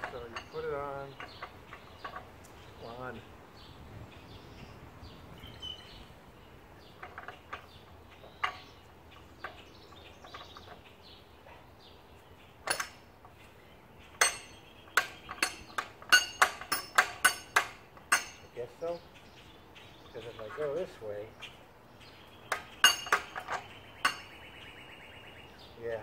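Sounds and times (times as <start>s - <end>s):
metal clicks and clinks: 0.0s - 2.3s, 12.6s - 13.0s, 14.2s - 18.6s, 22.5s - 24.3s.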